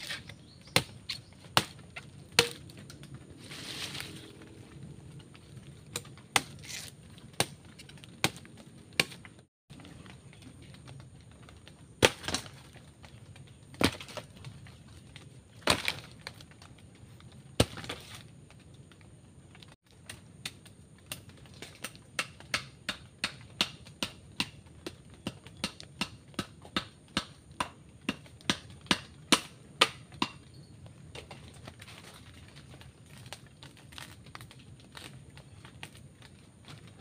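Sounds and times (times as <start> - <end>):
blade chopping bamboo: 0.0 - 2.7, 6.0 - 9.2, 21.8 - 30.4.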